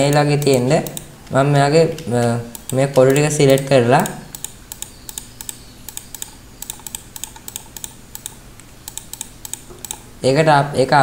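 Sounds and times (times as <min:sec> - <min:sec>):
keyboard and mouse clicking: 0:00.0 - 0:10.1.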